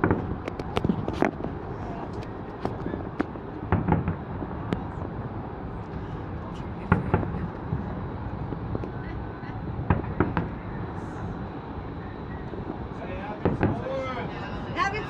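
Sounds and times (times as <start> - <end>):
fireworks bangs and pops: 0.0 - 5.2, 6.8 - 9.0, 9.8 - 10.6, 12.5 - 14.0
city and wind noise: 0.0 - 15.0.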